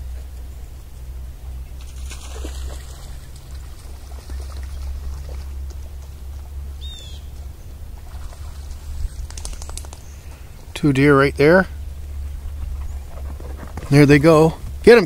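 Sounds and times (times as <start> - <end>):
wind noise on microphone: 7.8 - 10.7
sharp cracks: 9.2 - 10.4.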